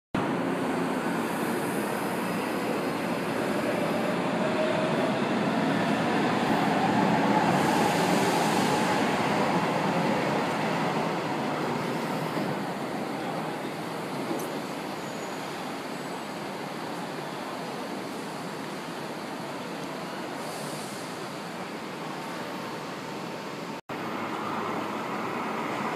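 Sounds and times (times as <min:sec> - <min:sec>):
train wheels rumbling on rails: 0:00.2 - 0:14.8.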